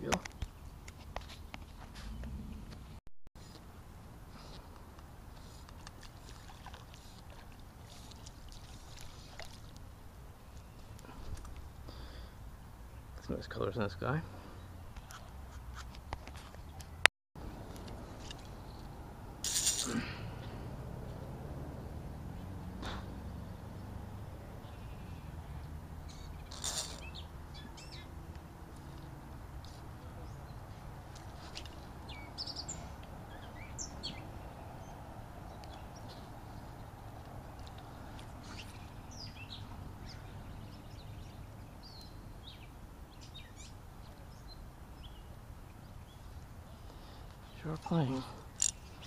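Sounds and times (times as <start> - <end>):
shallow water splashing and lapping: 5.4 - 11.6.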